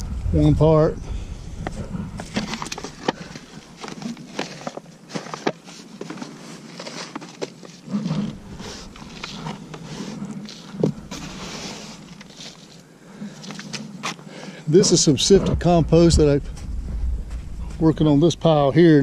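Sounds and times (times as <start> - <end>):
compost scooped by hand: 2.4 - 14.2.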